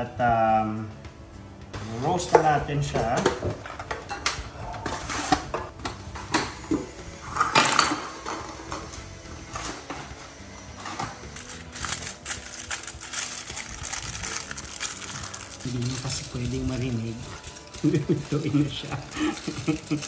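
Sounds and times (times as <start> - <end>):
aluminium foil crinkling: 10.8 - 20.0.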